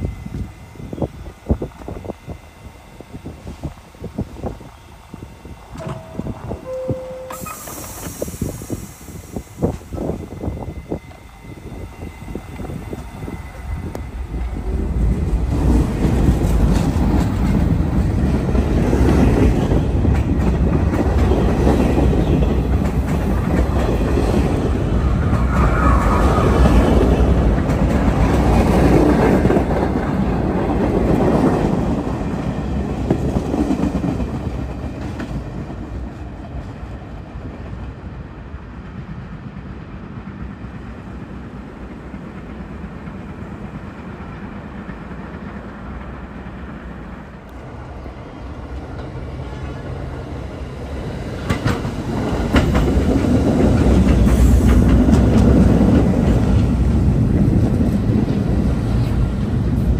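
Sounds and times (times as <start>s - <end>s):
subway train running past: 0.0s - 59.9s
wheels clacking on rails: 12.2s - 47.7s, 48.4s - 59.9s.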